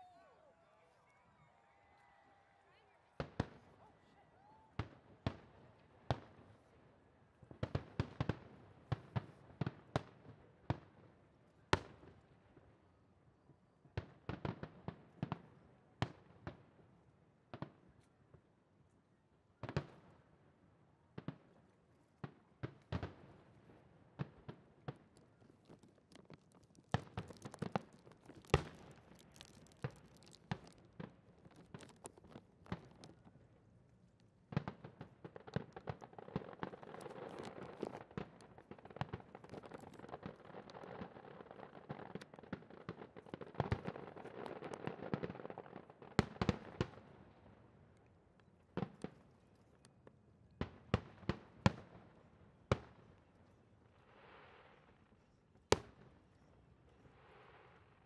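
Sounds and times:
fireworks crackling: 22.8 - 47.5
fireworks bursting with bangs: 34.5 - 47.2.

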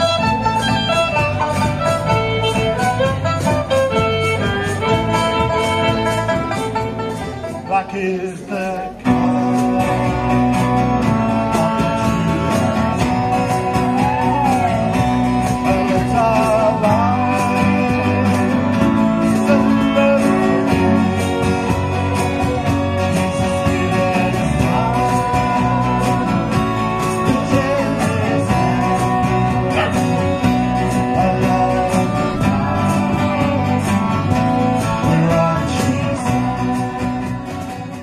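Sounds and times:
fiddle melody: 0.0 - 8.7, 26.2 - 35.6
bass line: 0.0 - 38.0
strummed acoustic guitars: 0.0 - 38.0.

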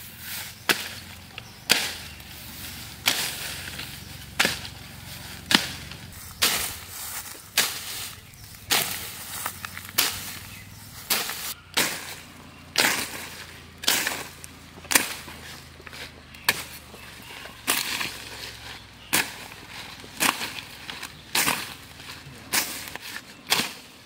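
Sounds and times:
sickle slashing through weeds: 0.0 - 16.8, 17.6 - 24.0.

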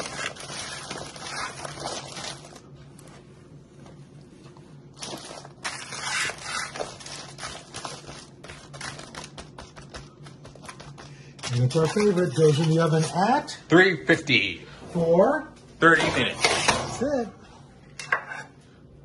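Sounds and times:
foil crinkling and rustling: 0.0 - 2.7, 5.0 - 13.5.

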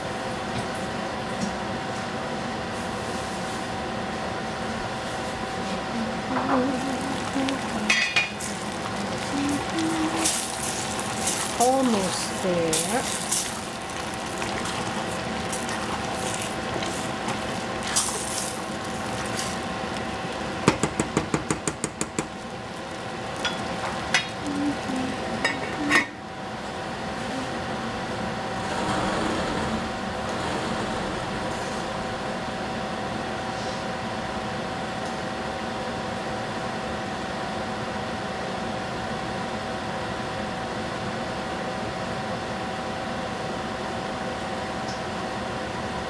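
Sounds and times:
covered pan hissing: 6.6 - 19.8
food sizzling in a pan: 6.8 - 20.9, 22.2 - 25.7.

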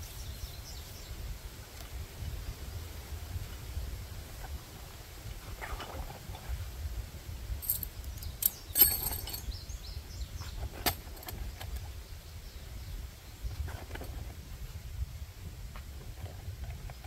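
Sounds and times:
metal tent stakes clinking: 7.6 - 9.5.

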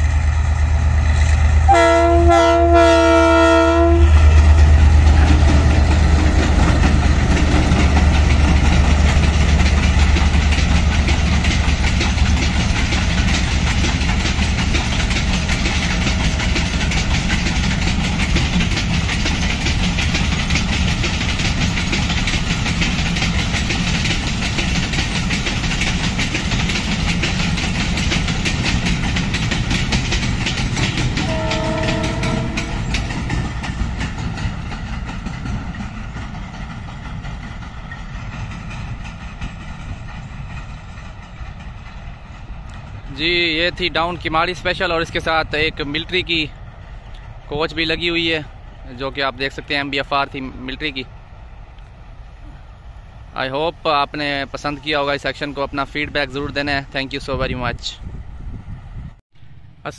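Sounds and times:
diesel locomotive engine: 0.0 - 59.9
wagons clattering on rail joints: 1.3 - 46.5
locomotive horn: 1.7 - 4.4, 31.2 - 33.0.

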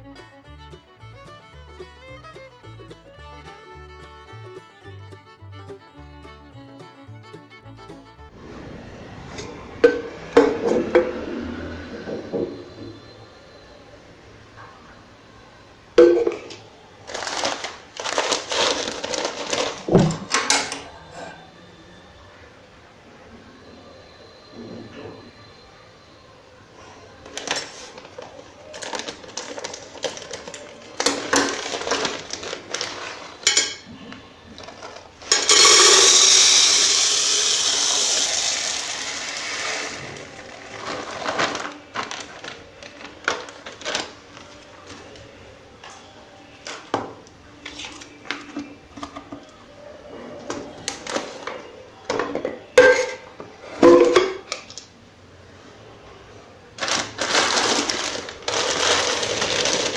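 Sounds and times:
plastic bags crinkling: 17.0 - 20.4, 27.4 - 33.7, 39.8 - 44.7, 56.8 - 59.9
seeds rattling into cardboard tube: 17.1 - 19.9, 34.8 - 42.5, 56.8 - 59.9.

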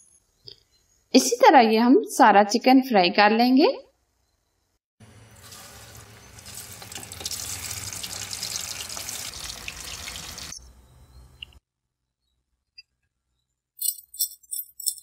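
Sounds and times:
chicken sizzling in hot oil: 5.1 - 10.6.

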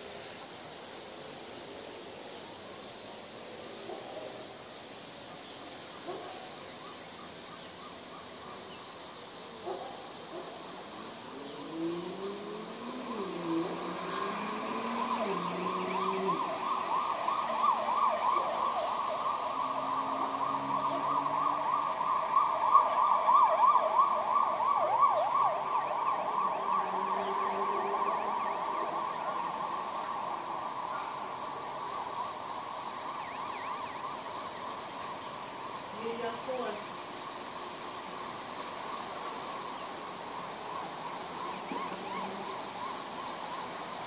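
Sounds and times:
emergency sirens yelping: 10.8 - 37.0, 38.4 - 44.0.

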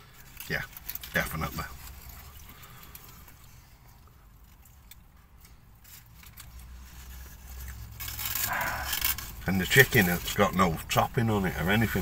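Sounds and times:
chewing: 6.2 - 9.4.

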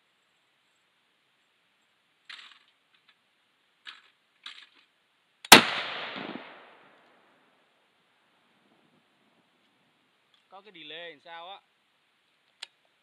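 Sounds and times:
rifle shot echoing: 5.5 - 7.0.

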